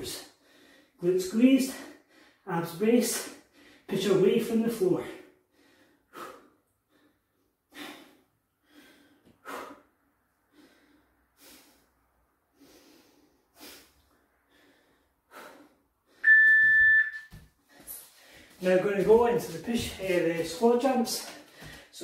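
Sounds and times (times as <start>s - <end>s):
man breathing hard: 0.3s - 1.0s, 5.2s - 16.2s, 21.4s - 21.9s
electronic timer beep: 16.2s - 17.3s.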